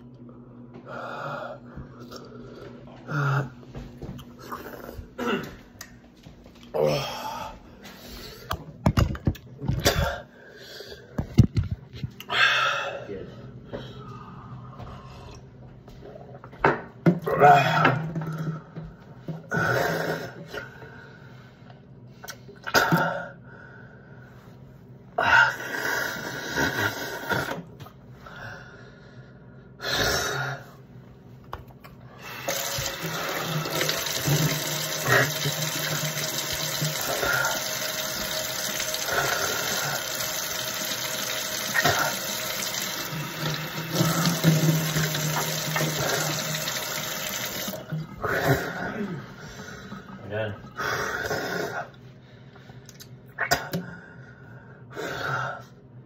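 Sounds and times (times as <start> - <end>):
faucet running into steel sink: 32.4 - 47.8.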